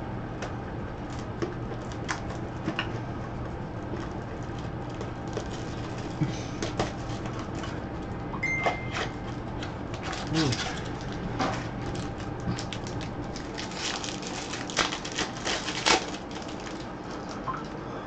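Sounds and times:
steady low hum: 0:00.0 - 0:18.0
plastic wrap crinkling: 0:03.9 - 0:07.7, 0:09.5 - 0:17.8
short high beep: 0:08.4 - 0:09.1.

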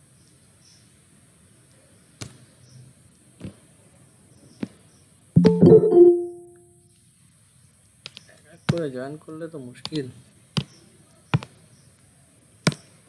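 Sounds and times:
electronic notification chime: 0:05.4 - 0:06.6.

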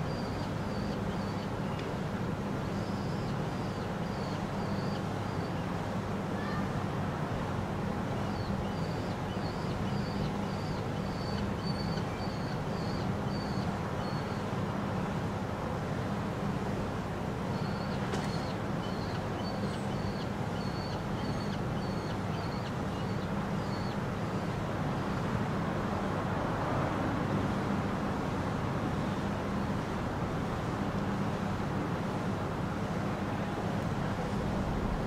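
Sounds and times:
city traffic rumble: 0:00.0 - 0:35.0.

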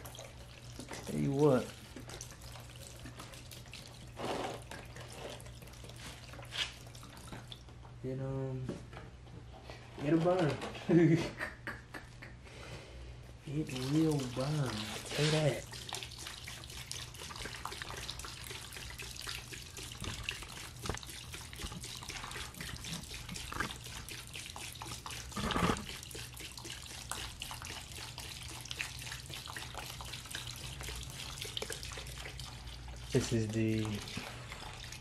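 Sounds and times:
liquid pouring and splashing: 0:00.0 - 0:07.9, 0:13.5 - 0:35.0.

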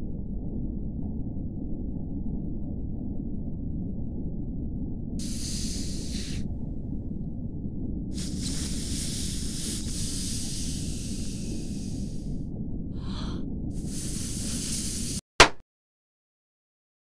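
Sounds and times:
steady low rumble: 0:00.0 - 0:15.2
wind rushing: 0:05.2 - 0:07.2, 0:08.1 - 0:12.4.

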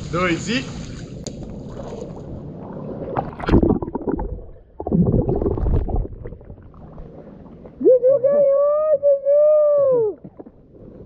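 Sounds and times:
pool water splashing: 0:00.0 - 0:07.8
water washing over camera: 0:03.0 - 0:07.2.

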